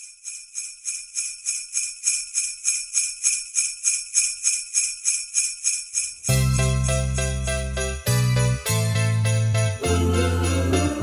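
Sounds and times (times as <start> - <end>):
sleigh bells shaking: 0.0 - 11.0.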